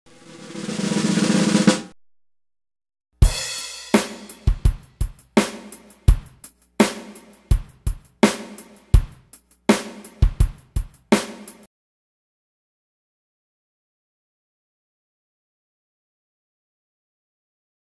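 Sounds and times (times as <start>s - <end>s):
drum kit playing: 0.1s - 2.0s, 3.2s - 11.7s.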